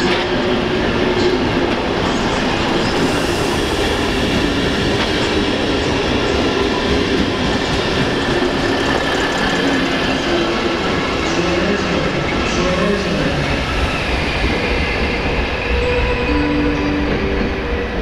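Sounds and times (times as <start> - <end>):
train wheels clacking over rail joints: 6.9 - 10.4.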